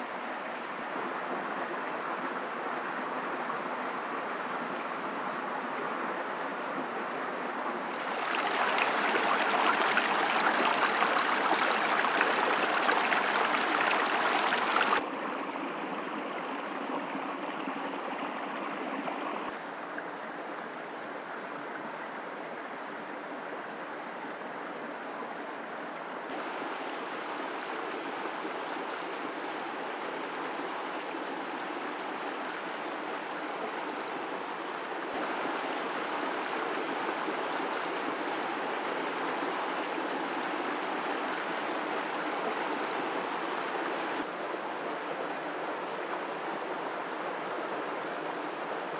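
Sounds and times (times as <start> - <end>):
stream running over rocks: 7.7 - 20.0, 26.3 - 48.9.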